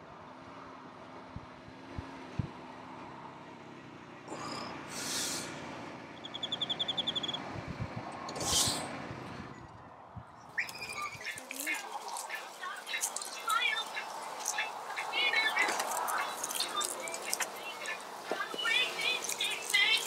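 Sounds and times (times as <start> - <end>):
bird trilling: 6.2 - 7.4, 10.6 - 20.0
birds calling: 6.2 - 7.5, 10.5 - 20.0.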